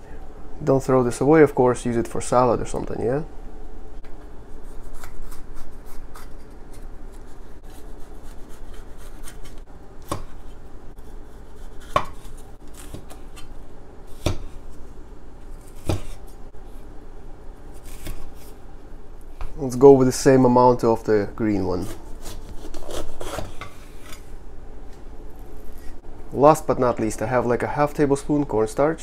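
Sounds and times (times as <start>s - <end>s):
cleaver chopping on wooden board: 14.2s - 14.5s, 15.8s - 16.2s.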